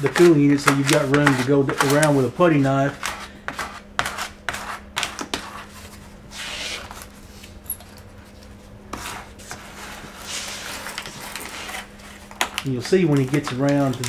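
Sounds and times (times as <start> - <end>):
foil rubbing and crinkling: 9.0 - 14.0.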